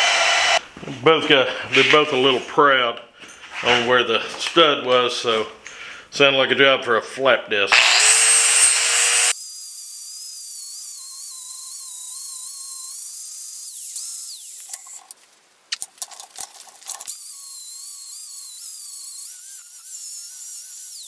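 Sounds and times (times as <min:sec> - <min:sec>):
angle grinder grinding metal: 0:00.0 - 0:00.6, 0:07.7 - 0:15.2, 0:16.4 - 0:21.0.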